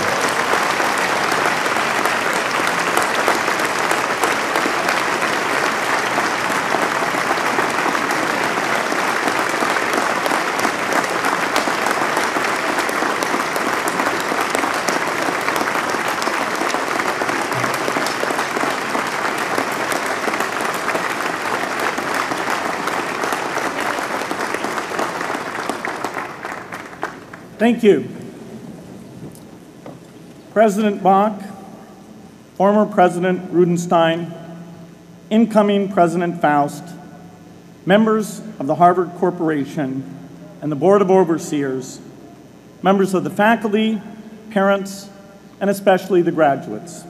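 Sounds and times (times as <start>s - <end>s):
large crowd applauding: 0.0s - 27.6s.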